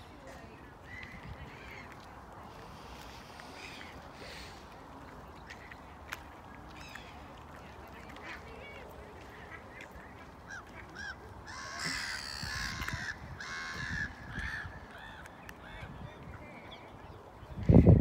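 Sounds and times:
waterfowl honking and quacking: 0:07.9 - 0:15.9.

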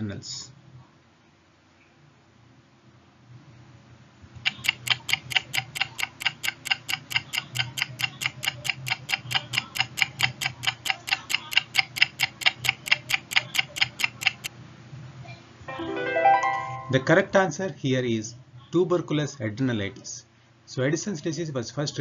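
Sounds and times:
clock ticking: 0:04.5 - 0:14.5.

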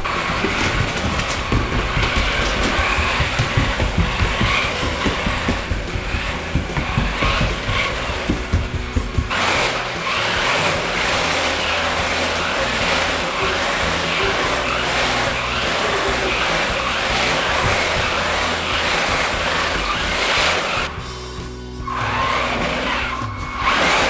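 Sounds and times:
toy car electric motors whirring: 0:00.0 - 0:21.0, 0:21.8 - 0:24.0
tyres running on floor boards: 0:00.0 - 0:24.0.

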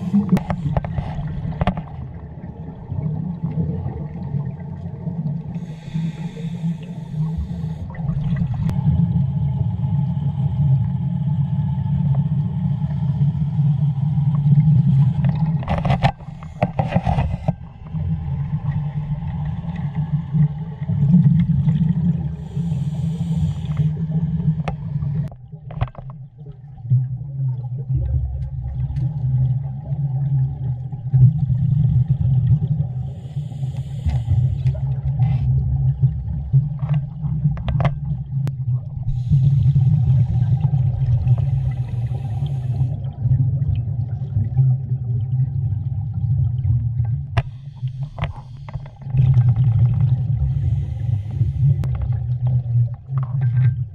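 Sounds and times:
exhaled bubbles: 0:00.0 - 0:53.9
low underwater rumble: 0:00.0 - 0:53.9
regulator hiss on inhale: 0:05.6 - 0:08.0, 0:22.4 - 0:24.0, 0:33.0 - 0:34.9, 0:39.1 - 0:40.3, 0:41.3 - 0:43.0, 0:47.4 - 0:49.0, 0:50.4 - 0:51.9.

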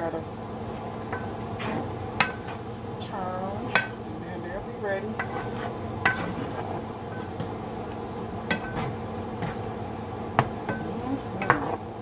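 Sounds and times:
kitchen fan humming: 0:00.0 - 0:12.0
utensil clinking on skillet: 0:08.5 - 0:08.9.

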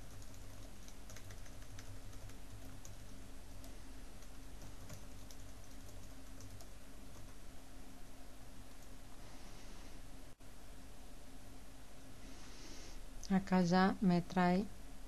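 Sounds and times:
keyboard typing clicks: 0:00.0 - 0:07.4
steady low hum: 0:00.0 - 0:15.0.

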